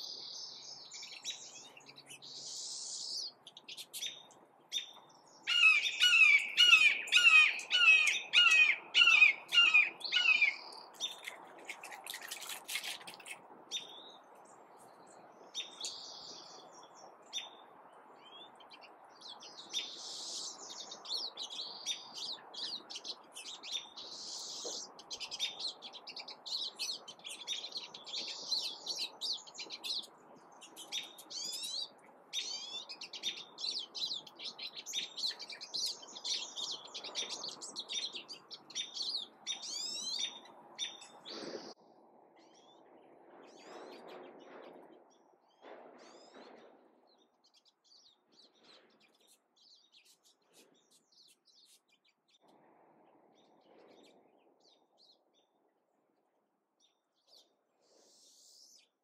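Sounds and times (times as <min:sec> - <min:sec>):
songbirds chirping and singing: 0:00.0 - 0:41.8
faint background noise: 0:00.0 - 0:59.0.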